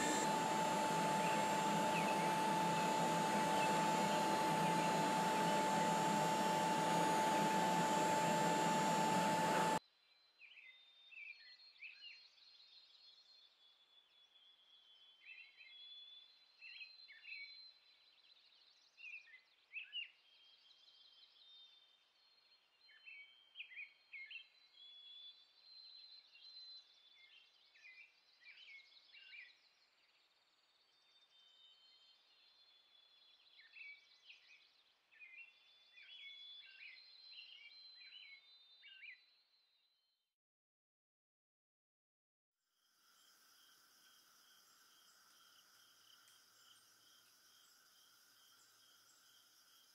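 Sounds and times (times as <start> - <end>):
birds chirping: 0.0 - 9.8
bit cutting wood: 0.0 - 9.8
router spindle whine: 0.0 - 9.8.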